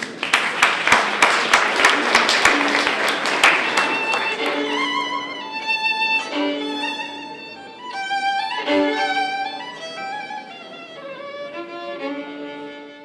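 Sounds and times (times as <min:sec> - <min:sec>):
fiddle melody in long notes: 0:03.4 - 0:13.0.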